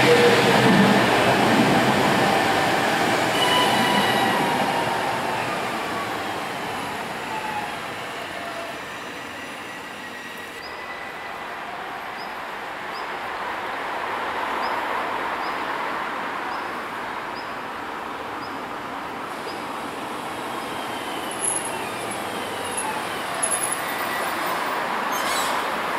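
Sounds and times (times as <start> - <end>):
tram rolling rail noise: 0.0 - 25.9.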